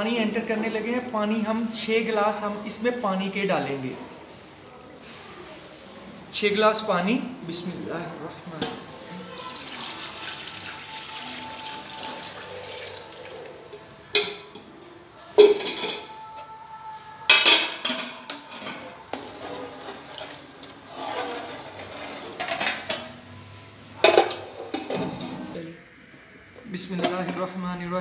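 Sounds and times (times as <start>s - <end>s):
water pouring into a pot: 9.2s - 13.9s.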